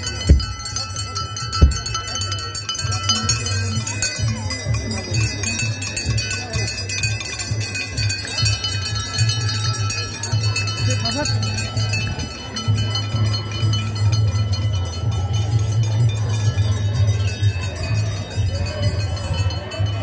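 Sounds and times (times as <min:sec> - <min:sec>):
metallic bell-like jingling: 0:00.0 - 0:20.0
rhythmic low pulse: 0:00.0 - 0:20.0
sharp thump: 0:01.6 - 0:01.9.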